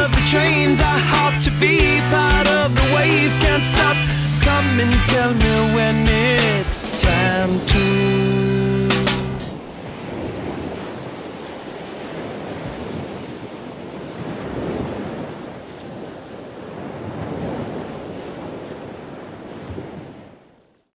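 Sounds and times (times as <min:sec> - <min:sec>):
surf breaking on rocky shore: 0:00.0 - 0:20.3
wind rumbling on microphone: 0:06.5 - 0:20.5.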